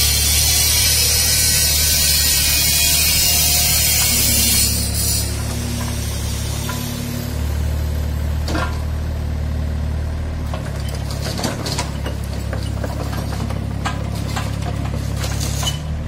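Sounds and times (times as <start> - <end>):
steel tracks clanking: 0.0 - 7.6
excavator diesel engine running: 0.0 - 16.0.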